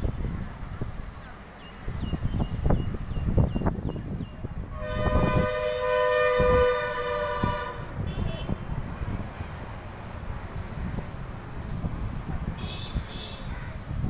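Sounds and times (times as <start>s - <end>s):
vehicle horn two-note blast: 4.7s - 8.6s.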